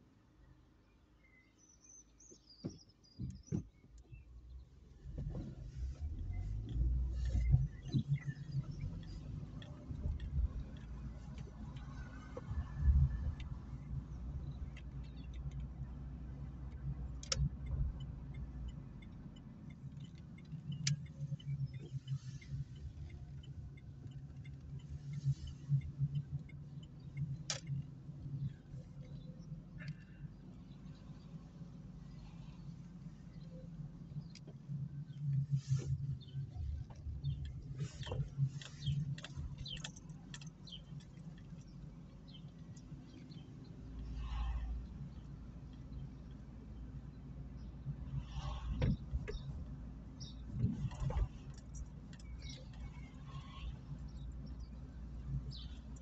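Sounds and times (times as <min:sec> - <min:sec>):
car engine and road rumble: 0:00.0 - 0:56.0
faint ticks: 0:06.5 - 0:15.9, 0:16.6 - 0:30.2.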